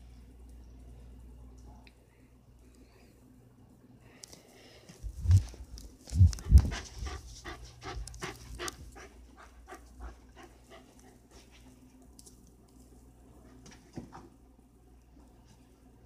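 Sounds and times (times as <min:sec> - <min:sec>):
dog panting: 0:06.3 - 0:11.8.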